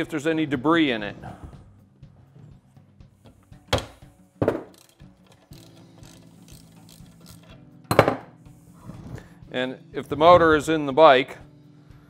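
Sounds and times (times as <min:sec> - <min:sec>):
ratchet wrench clicking: 0:04.5 - 0:07.6.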